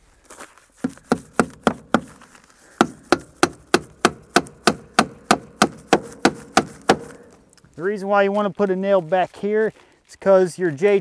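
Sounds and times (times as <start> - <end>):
hammer striking nail in metal: 2.8 - 7.2.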